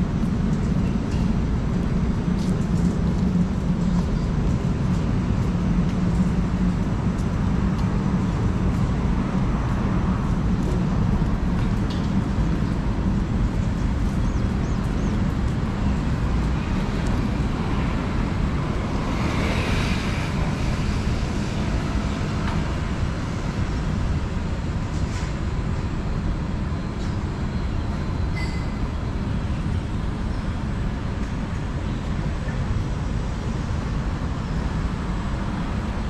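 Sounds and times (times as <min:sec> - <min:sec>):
roadside traffic rumble: 0:00.0 - 0:36.0.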